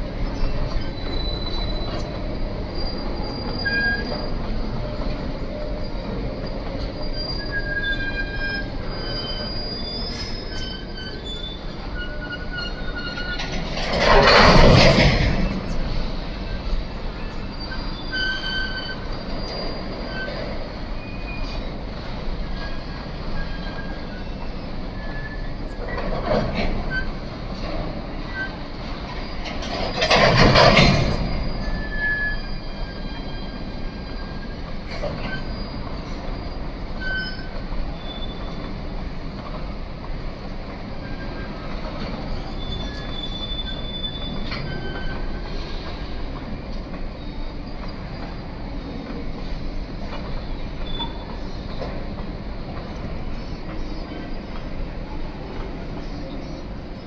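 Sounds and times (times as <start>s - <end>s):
train wheels rumbling on track: 0.0s - 57.0s
high-pitched wheel squeals: 0.2s - 26.2s, 28.2s - 39.1s, 40.9s - 46.4s, 50.2s - 51.8s.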